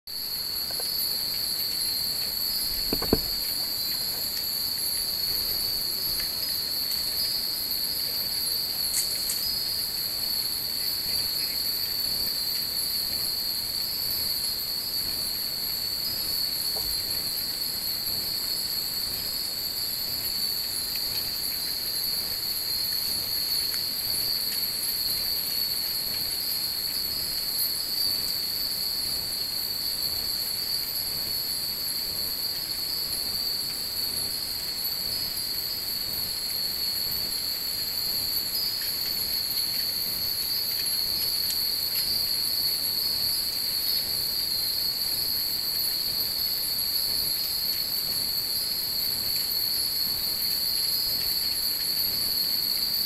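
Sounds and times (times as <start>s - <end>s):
night insects chorus: 0.1s - 53.0s
short knock: 2.8s - 3.4s.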